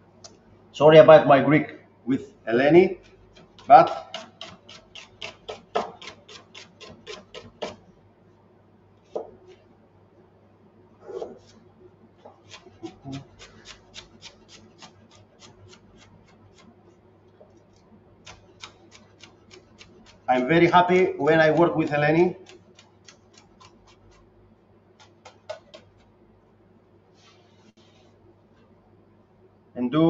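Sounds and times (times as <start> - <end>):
knife chopping on cutting board: 3.0 - 7.8, 12.3 - 16.7, 25.0 - 26.0.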